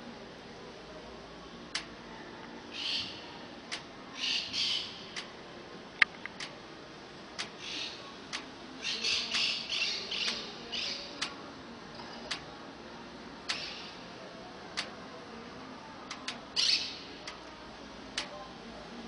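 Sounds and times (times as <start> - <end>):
sharp single clicks: 7.4 - 7.6, 13.5 - 13.8, 16.1 - 16.4.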